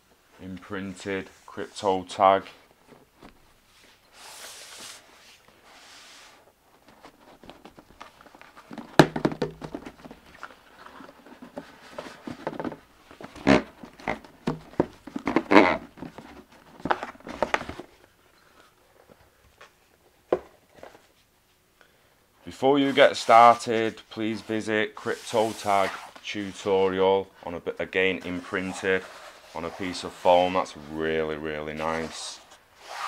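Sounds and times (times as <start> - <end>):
soft rubbing hisses on cardboard: 0.9 - 2.4, 3.1 - 7.7, 22.5 - 26.9, 27.6 - 33.0
cardboard box knocks and scraping: 8.6 - 10.2.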